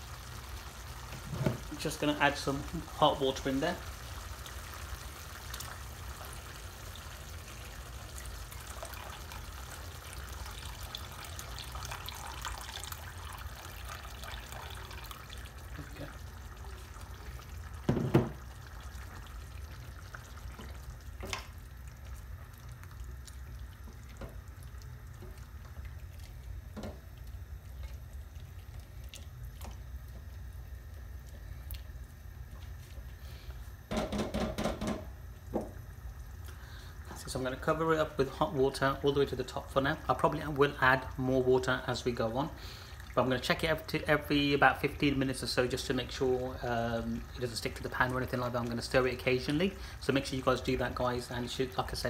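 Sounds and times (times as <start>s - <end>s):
water pouring into a metal pan: 0.0s - 21.4s
loud knock: 17.9s - 18.4s.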